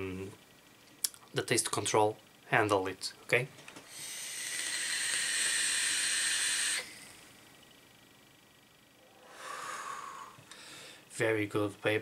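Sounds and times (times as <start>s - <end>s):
breathy exhale hiss: 3.8s - 7.3s, 9.1s - 11.1s
airy vape draw hiss: 3.9s - 7.2s.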